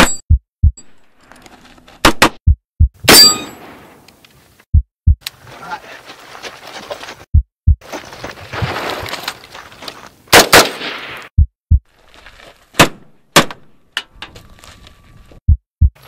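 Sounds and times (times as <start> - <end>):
deep heartbeat-like thumps: 0.2 - 0.8, 2.2 - 3.1, 4.7 - 5.2, 7.2 - 7.9, 11.3 - 11.9, 15.4 - 16.0
rifle gunshots: 10.3 - 11.2.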